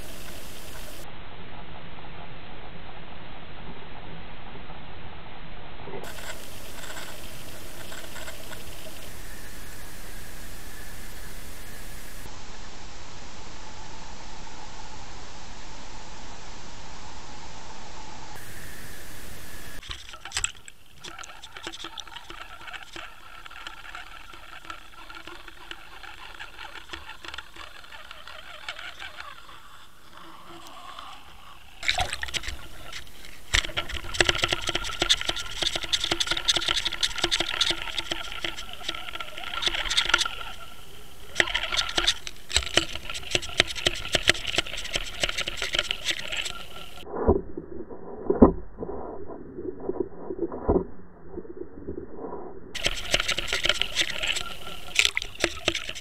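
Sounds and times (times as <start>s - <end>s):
faint hum: 0.0s - 56.0s
scattered ticks: 6.0s - 9.1s, 19.8s - 47.0s, 52.8s - 56.0s.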